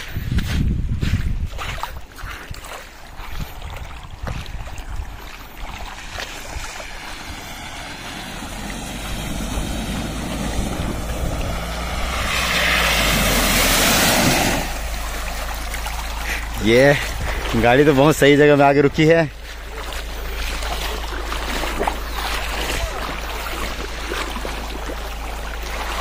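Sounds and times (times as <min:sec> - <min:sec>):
water splashing from tyres: 0:01.6 - 0:26.0
car engine running: 0:05.9 - 0:26.0.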